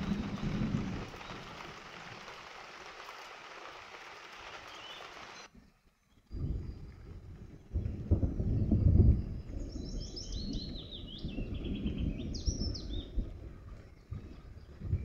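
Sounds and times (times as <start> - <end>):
thunder rolling: 0.0 - 2.3, 6.4 - 10.0
songbird chirping: 4.2 - 15.0.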